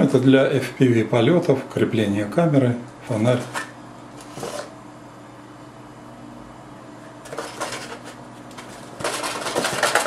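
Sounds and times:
faint steady hum: 0.0 - 10.0
cardboard rustling and scraping: 4.2 - 4.7.

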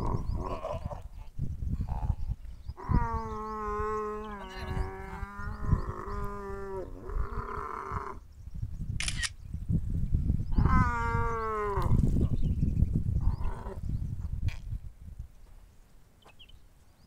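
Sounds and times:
camel bellowing: 0.0 - 2.2, 2.8 - 8.2, 10.5 - 12.3.

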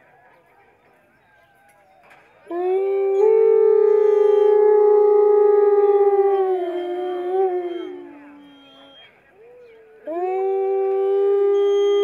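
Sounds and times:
wolves howling: 2.5 - 12.0.

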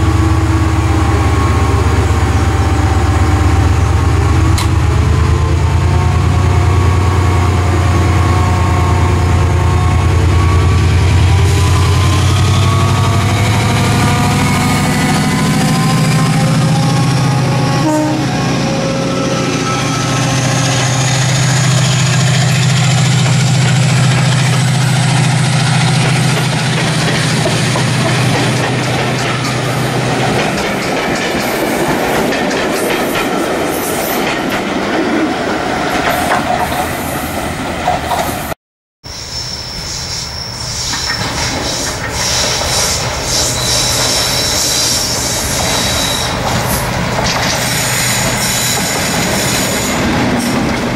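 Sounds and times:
locomotive high whine: 0.0 - 31.7, 39.1 - 50.9
coaches rumbling on rails: 0.0 - 38.6, 39.5 - 50.9
diesel locomotive engine drone: 0.0 - 50.9
high squealing tones: 39.1 - 46.9.

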